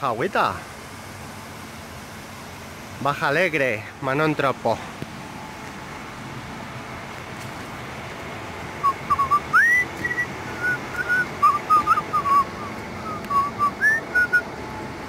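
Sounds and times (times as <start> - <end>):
stream water flowing: 0.0 - 15.0
person whistling a tune: 8.8 - 14.4.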